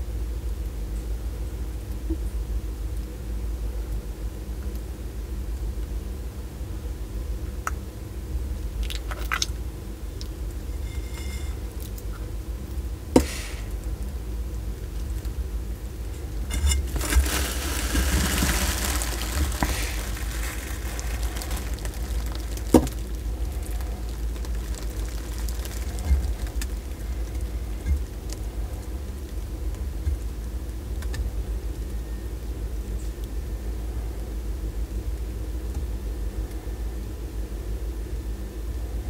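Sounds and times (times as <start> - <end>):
tortoise wet chewing: 16.8 - 30.8.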